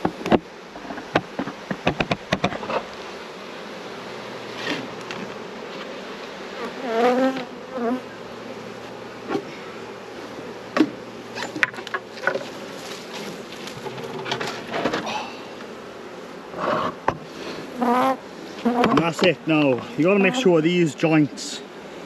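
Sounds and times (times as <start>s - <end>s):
hive boxes knocking: 0.0s - 2.9s, 18.7s - 20.5s
honeybees buzzing: 0.0s - 22.0s.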